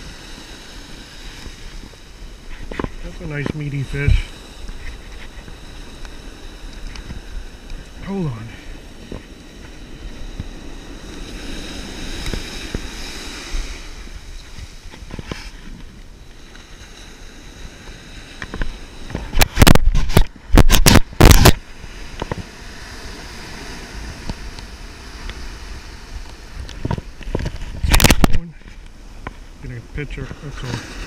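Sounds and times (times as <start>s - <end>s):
surf washing over sand: 0.0s - 31.0s.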